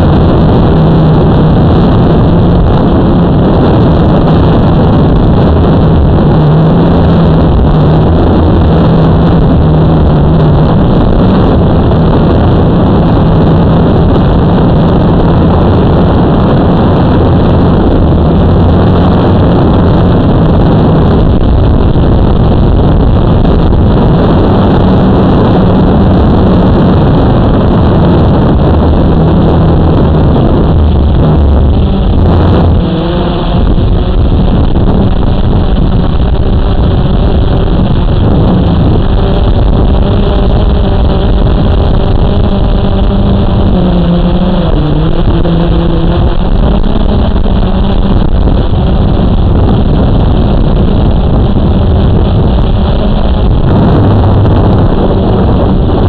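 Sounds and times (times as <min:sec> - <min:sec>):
drone propellers buzzing: 0:00.0 - 0:56.0.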